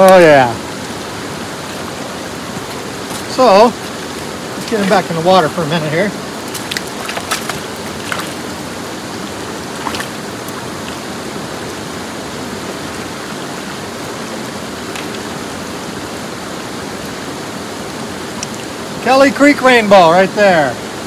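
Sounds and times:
creek water rushing: 0.0 - 21.0
faint splash: 2.5 - 8.8, 9.7 - 11.2, 14.8 - 15.4.

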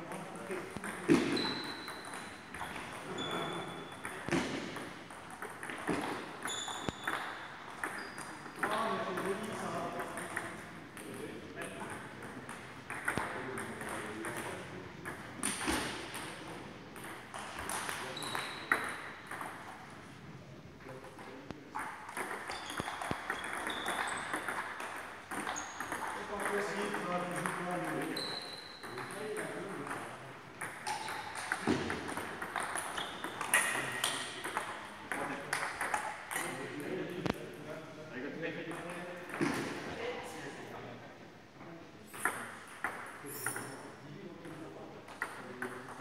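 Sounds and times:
table tennis balls clicking: 0.1 - 20.2, 21.2 - 36.6.

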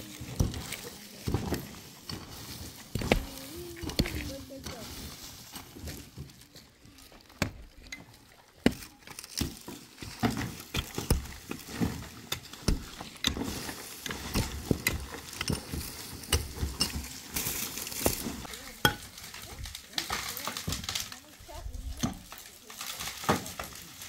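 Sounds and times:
stones and dirt clattering: 0.0 - 24.0
pickaxe striking earth: 8.6 - 19.1.

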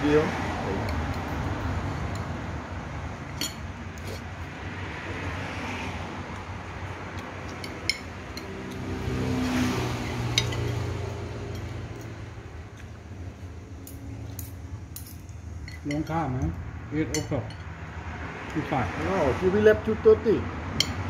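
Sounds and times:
vehicle engine passing: 0.0 - 14.9, 16.2 - 21.0.

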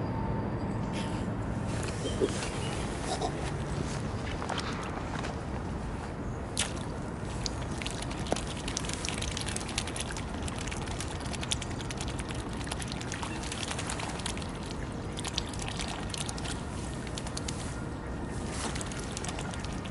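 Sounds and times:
low background rumble: 1.1 - 19.9
swans snapping bills wet clicks: 6.6 - 17.7, 18.6 - 19.9.

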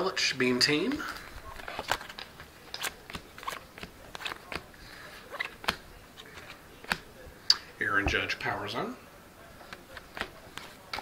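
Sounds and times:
cards flipped by hand clicking: 5.4 - 7.6.

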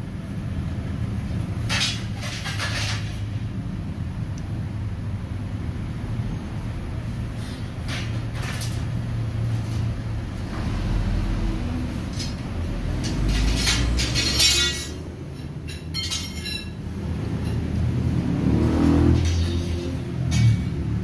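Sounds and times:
metal clicks and rattles: 12.1 - 16.8.

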